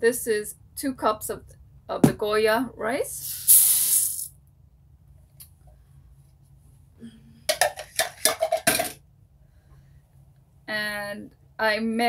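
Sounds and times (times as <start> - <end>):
utensils clattering against pot: 7.5 - 9.0.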